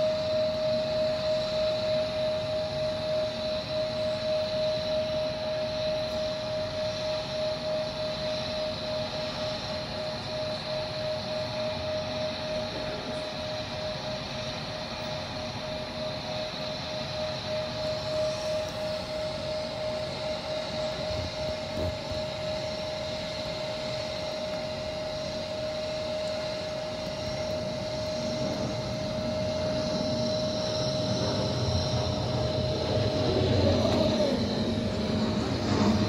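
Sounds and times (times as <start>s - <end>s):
jet engine whine: 0.0s - 36.0s
low jet rumble: 0.4s - 36.0s.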